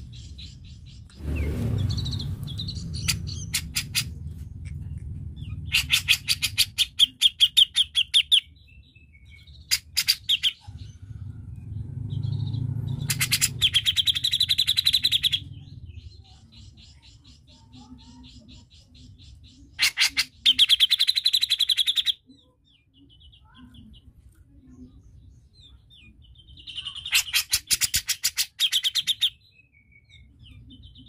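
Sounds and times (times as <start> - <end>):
steady low rumble: 0.0 - 17.8
bird chattering trills: 1.8 - 4.2, 5.4 - 8.6, 9.6 - 11.0, 12.3 - 22.3, 26.4 - 29.4.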